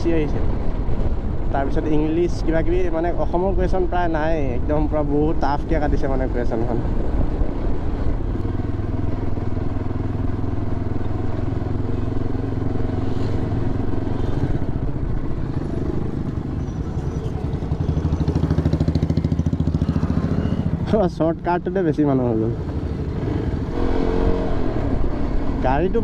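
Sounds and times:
motorcycle engine running and idling: 2.7s - 21.9s.

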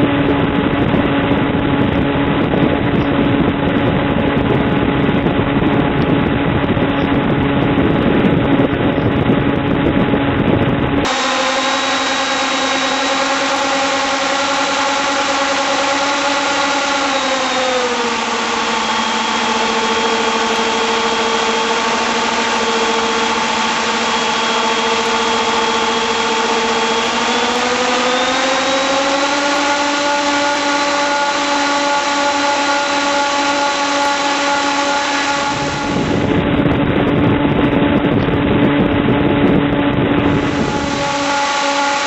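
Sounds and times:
electric motor whine: 0.0s - 42.0s
propeller blast rushing: 0.0s - 42.0s.

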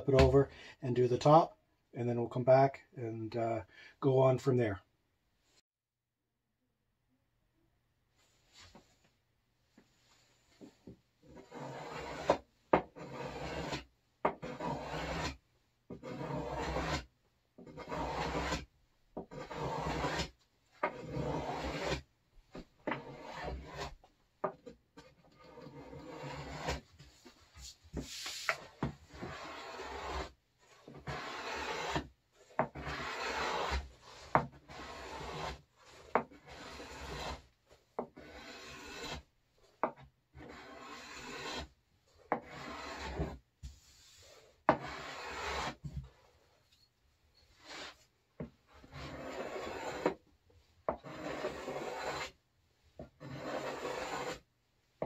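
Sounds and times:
hand plane scraping wood: 0.0s - 0.5s, 11.2s - 46.5s, 47.4s - 54.5s.

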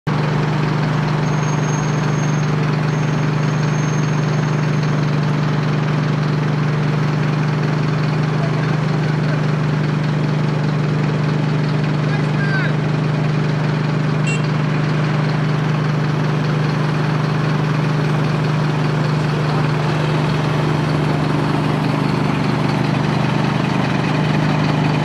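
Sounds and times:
vehicle engine idling: 0.1s - 25.0s.

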